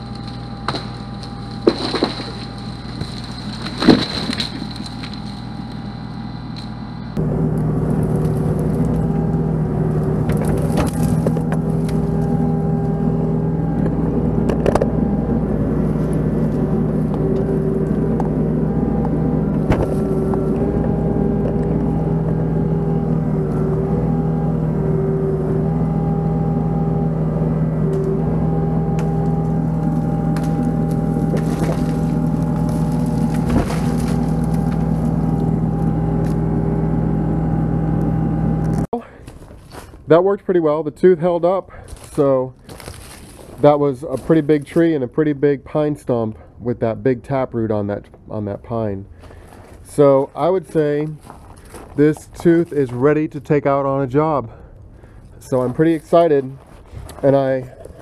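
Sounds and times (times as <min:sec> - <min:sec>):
roots cracking and knocking: 0:00.0 - 0:06.8, 0:07.5 - 0:13.0, 0:19.0 - 0:22.4, 0:28.9 - 0:36.4, 0:41.8 - 0:45.0
hydraulic whine: 0:00.0 - 0:39.0
diesel engine running under load: 0:00.0 - 0:40.1, 0:49.1 - 0:58.0.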